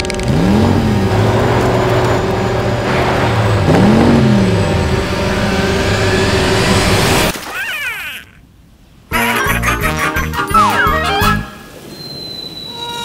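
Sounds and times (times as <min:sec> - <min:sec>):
loud steady rushing noise: 0:00.3 - 0:07.3.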